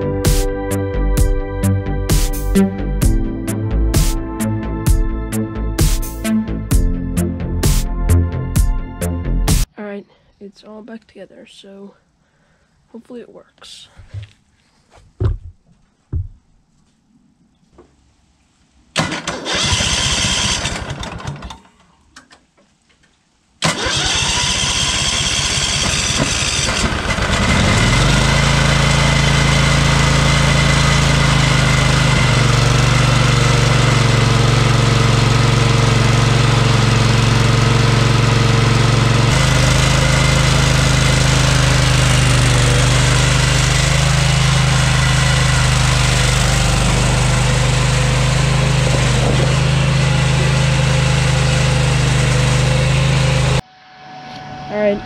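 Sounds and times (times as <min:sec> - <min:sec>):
engine starter cranking: 0:19.0 - 0:21.8, 0:23.6 - 0:29.9
engine running steadily: 0:23.6 - 0:53.6.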